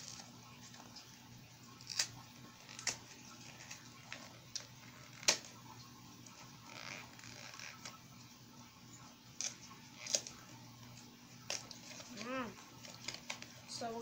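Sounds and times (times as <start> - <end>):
plastic packaging crinkling: 0.0 - 8.0, 9.4 - 14.0
plastic packaging clicking: 1.8 - 5.5, 11.4 - 13.6.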